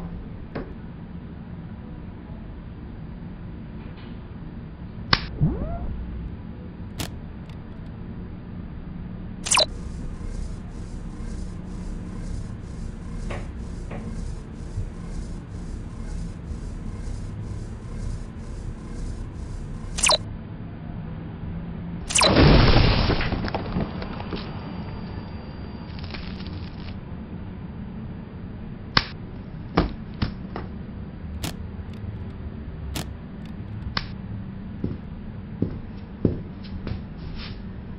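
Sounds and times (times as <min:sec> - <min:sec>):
steady low hum: 0:00.0 - 0:37.9
low rumbling noise: 0:05.2 - 0:29.7
short falling tones: 0:05.3 - 0:06.3.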